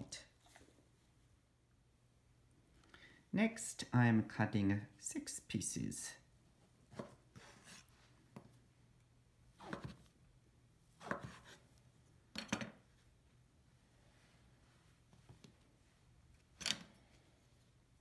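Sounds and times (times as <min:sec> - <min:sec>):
knife cutting onto wooden board: 0:11.0 - 0:11.6.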